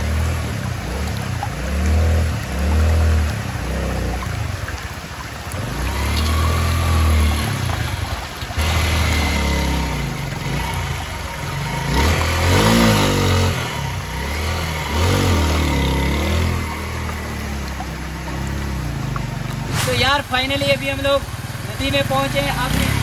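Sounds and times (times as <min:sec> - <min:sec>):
small motorcycle engine revving: 0:05.6 - 0:19.1, 0:21.7 - 0:23.0.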